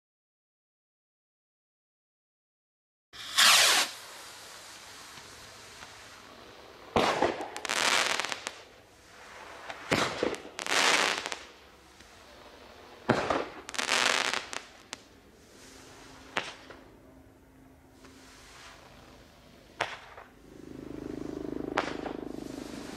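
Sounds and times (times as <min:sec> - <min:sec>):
firework rocket bangs: 0:03.2 - 0:06.3, 0:06.9 - 0:08.8, 0:09.5 - 0:11.6, 0:13.0 - 0:15.1, 0:16.2 - 0:16.8, 0:19.8 - 0:20.4, 0:21.6 - 0:22.9
firework hissing: 0:03.2 - 0:22.9.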